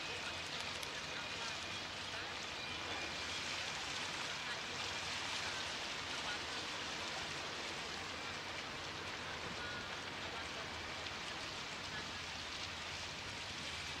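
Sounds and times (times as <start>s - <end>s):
ferry engines churning water: 0.0s - 14.0s.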